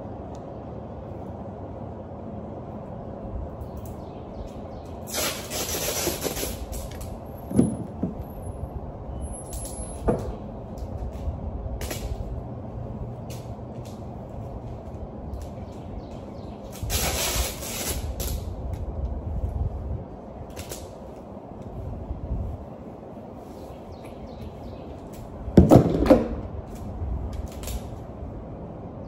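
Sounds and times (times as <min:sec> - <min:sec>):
vehicle rumbling: 0:00.0 - 0:29.0
short bursts of hiss: 0:05.0 - 0:06.9, 0:16.7 - 0:18.4.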